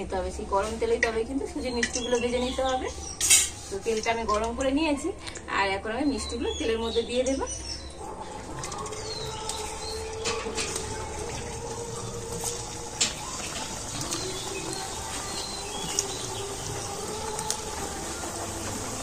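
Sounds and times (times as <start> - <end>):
sweets frying in hot oil: 9.0 - 19.0
clicks and splashes in oil: 12.8 - 17.8.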